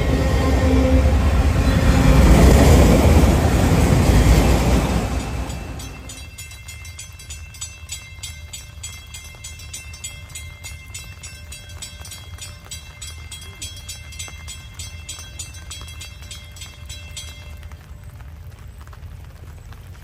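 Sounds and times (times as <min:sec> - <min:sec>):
distant freight train rumble: 0:00.0 - 0:20.0.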